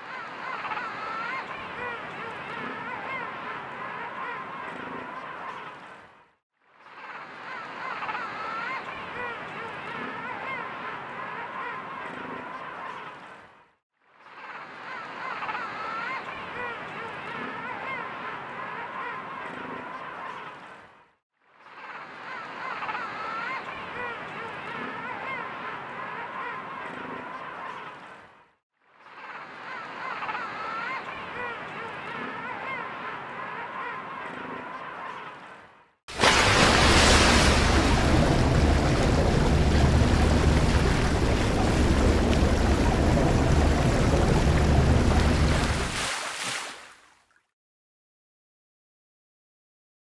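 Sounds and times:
underwater water churning: 36.1s - 46.1s
deep rumble: 36.4s - 45.9s.

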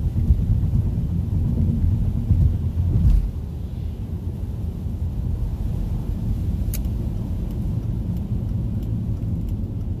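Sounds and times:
road and engine rumble in car: 0.0s - 10.0s
raindrops ticking on windshield: 6.5s - 10.0s.

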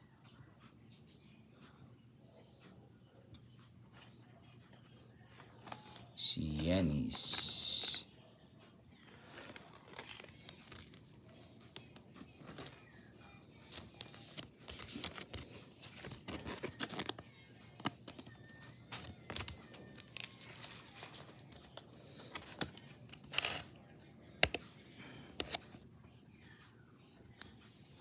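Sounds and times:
plastic sleeve crinkling: 9.3s - 17.2s, 17.8s - 23.7s.

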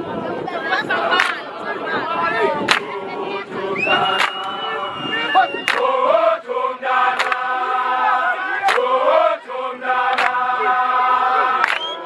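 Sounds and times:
men singing in harmony: 0.8s - 12.0s
sharp hand clap: 1.2s - 1.4s, 2.7s - 2.9s, 4.2s - 4.6s, 5.7s - 5.9s, 7.2s - 7.5s, 8.6s - 8.9s, 10.1s - 10.4s, 11.6s - 12.0s.

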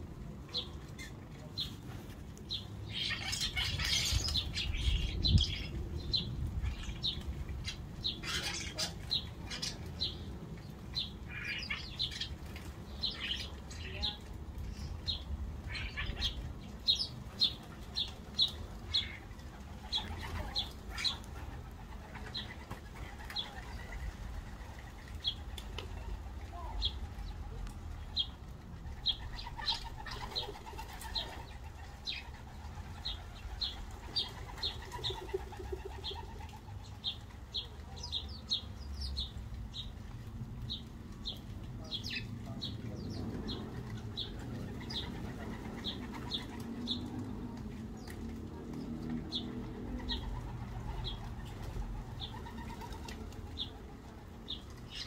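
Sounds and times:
sparrows chirping: 0.1s - 55.0s
wings fluttering: 17.6s - 37.9s, 43.2s - 55.0s.

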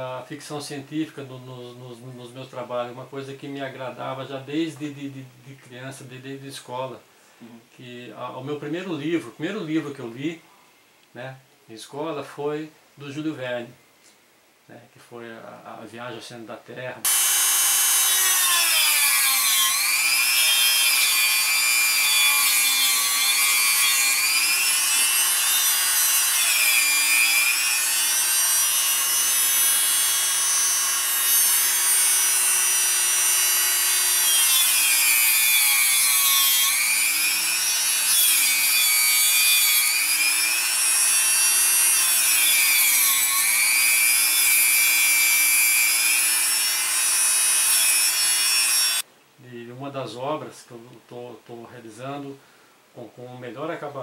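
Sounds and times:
rotary tool whining: 17.1s - 49.0s.

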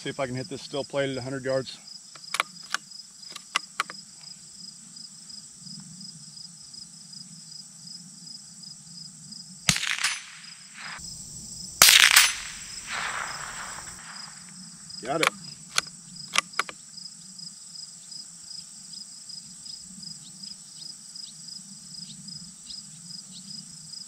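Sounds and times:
crickets and insects chirring: 0.0s - 24.0s
light rifle clicks: 2.1s - 4.0s, 9.7s - 10.5s, 11.9s - 14.5s, 15.1s - 16.8s
bullet hitting steel plate: 9.7s - 11.0s, 11.8s - 14.4s
suppressed rifle shot: 9.7s - 16.7s.

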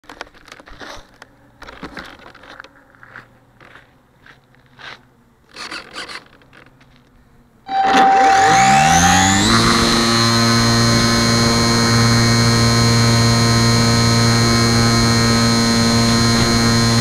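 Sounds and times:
electric motor and propeller whine: 7.7s - 17.0s.

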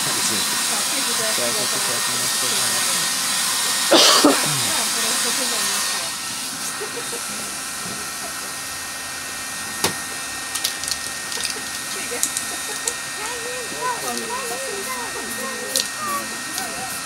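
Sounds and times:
spray can hissing: 10.1s - 17.0s
faint murmuring voices: 11.3s - 17.0s.

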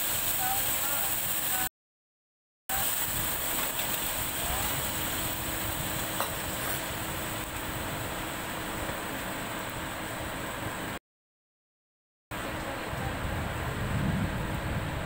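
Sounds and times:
food sizzling in a pan: 0.0s - 1.7s, 2.7s - 10.5s.

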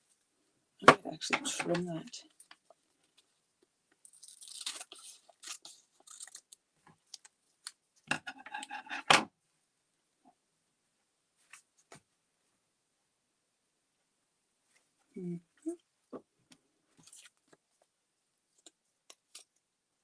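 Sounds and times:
paper rustling: 4.1s - 7.7s.

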